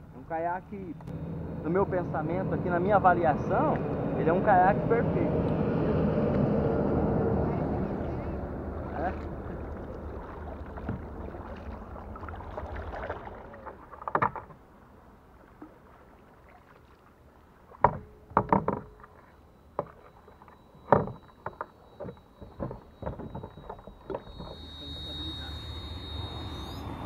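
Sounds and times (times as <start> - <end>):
wind and water hiss: 5.0 - 17.9
paddle splashes and knocks: 9.1 - 14.7, 15.5 - 24.3.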